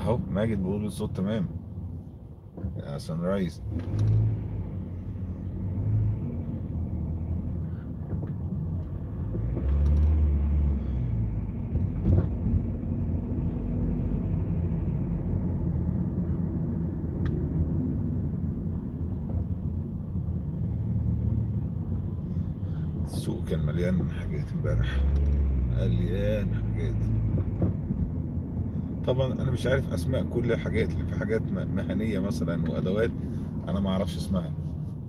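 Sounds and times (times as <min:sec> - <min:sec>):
car interior rumble: 0:00.0 - 0:35.0.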